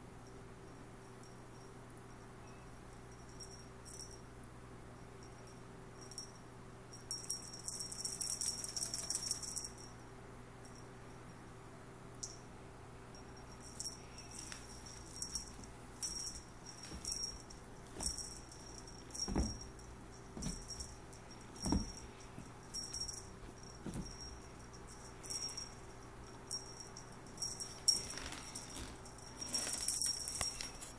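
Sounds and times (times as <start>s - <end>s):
small bell jingling: 0.2s - 4.2s, 5.0s - 11.4s, 13.1s - 30.9s
soft thumps on carpet: 16.8s - 18.4s, 19.2s - 19.7s, 20.4s - 21.0s, 21.6s - 22.6s, 23.4s - 24.5s.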